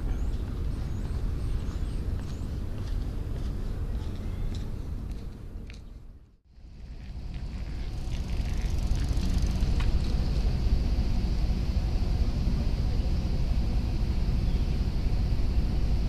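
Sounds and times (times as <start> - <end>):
distant city traffic rumble: 0.0 - 16.0.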